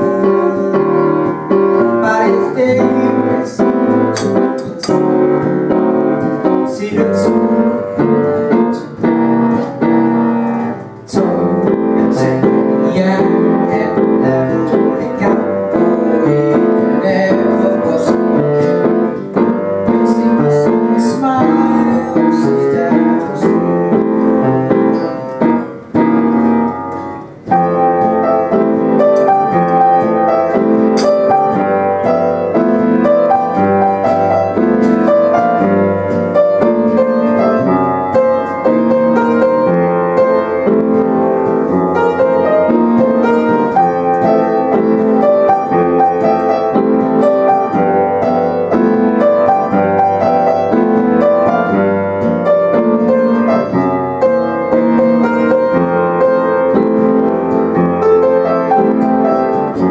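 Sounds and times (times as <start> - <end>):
piano playing: 0.0 - 59.9.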